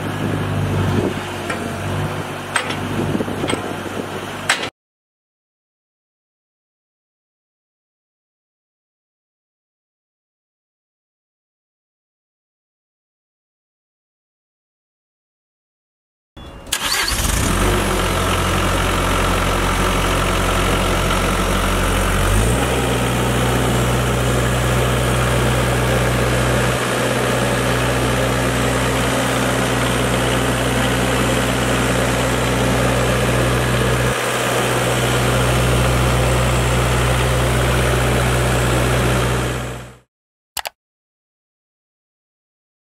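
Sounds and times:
diesel engine starting and running: 0:00.0 - 0:04.7, 0:16.4 - 0:40.7.

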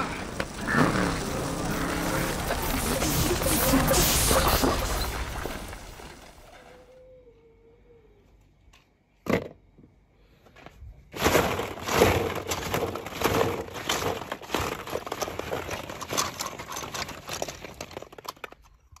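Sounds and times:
plastic balls rustling and clattering: 0:00.0 - 0:06.7, 0:11.1 - 0:19.0.

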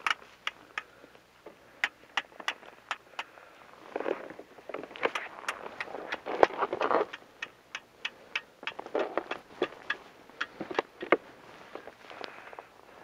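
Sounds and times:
rustling: 0:08.6 - 0:13.0.

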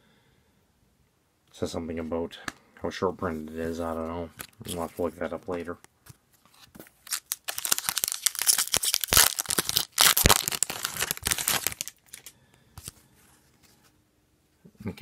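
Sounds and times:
foil wrapper tearing and crinkling: 0:06.9 - 0:12.9.

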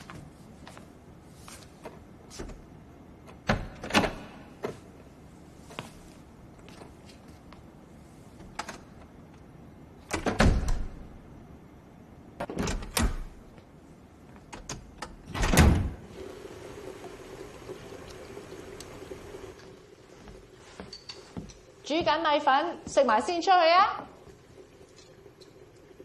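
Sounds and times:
wooden door banging and rattling: 0:10.1 - 0:11.0, 0:15.0 - 0:16.0.

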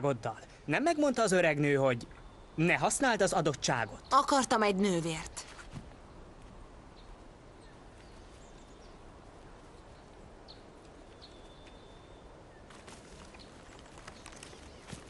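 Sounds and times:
low hiss: 0:00.0 - 0:15.0
faint bird chirps: 0:02.1 - 0:02.8, 0:09.7 - 0:15.0
light ticks and rustles: 0:05.3 - 0:15.0.

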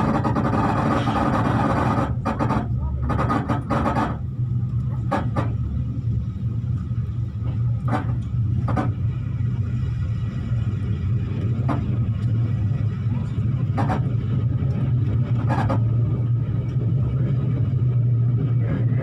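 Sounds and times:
train wheels clacking on rail joints: 0:00.0 - 0:05.9, 0:07.4 - 0:09.8, 0:10.9 - 0:17.0
train rumbling: 0:00.0 - 0:19.0.

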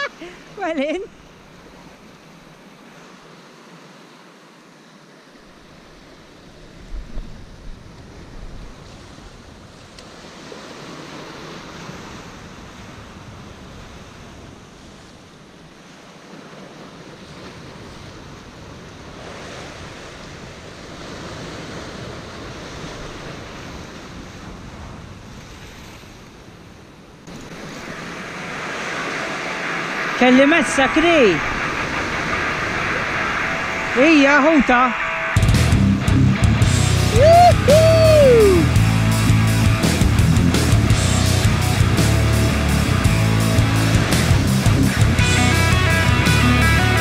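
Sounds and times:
waves breaking on rocks: 0:00.0 - 0:35.6, 0:36.7 - 0:38.9
wind buffeting microphone: 0:17.0 - 0:46.2.

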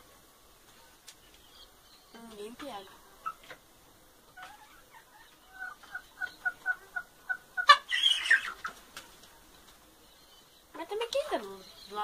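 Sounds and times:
chicken clucking: 0:02.6 - 0:03.7, 0:04.3 - 0:09.7.

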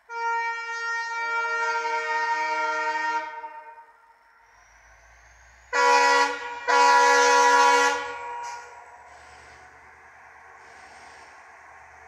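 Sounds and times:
locomotive air horn: 0:00.0 - 0:04.0, 0:05.7 - 0:09.3
diesel engine rumble: 0:04.1 - 0:12.0.

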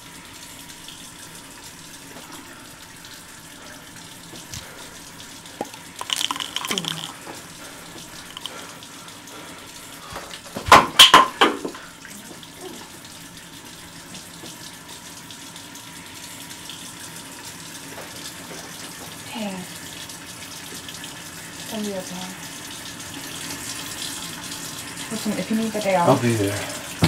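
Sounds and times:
hands splashing water: 0:04.4 - 0:04.9, 0:05.5 - 0:08.8
tap running into sink: 0:05.5 - 0:08.7, 0:10.0 - 0:12.4.

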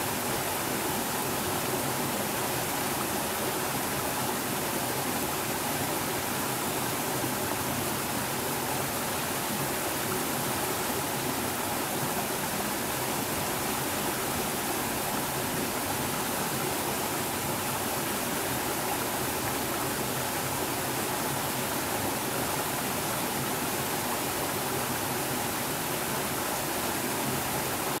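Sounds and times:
stream flowing over rocky cascade: 0:00.0 - 0:28.0.

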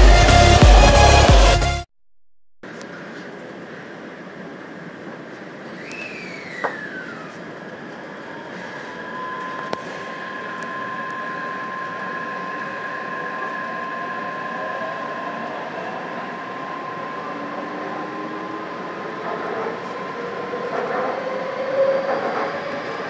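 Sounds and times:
train traction motors whining: 0:04.8 - 0:23.0
train wheels rumbling: 0:06.5 - 0:23.0.

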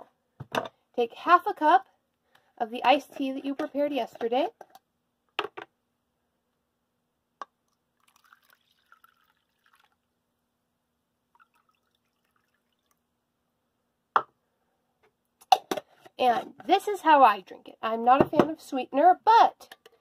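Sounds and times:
liquid trickling into cup: 0:08.0 - 0:10.1, 0:11.3 - 0:13.0.

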